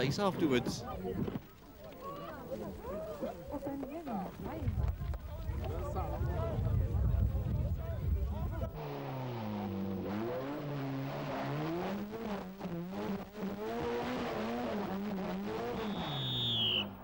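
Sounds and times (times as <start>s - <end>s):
rally car engine revving: 8.5s - 17.0s
high squeal falling in pitch: 15.7s - 17.0s.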